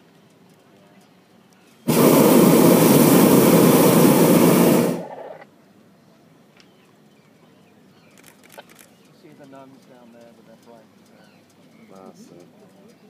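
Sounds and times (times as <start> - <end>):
propane burner blast: 1.8 - 5.5.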